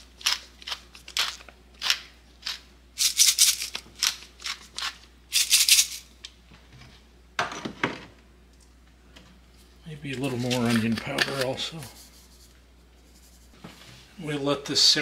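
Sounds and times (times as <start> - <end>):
pepper mill grinding: 0.0 - 6.1, 10.2 - 12.2.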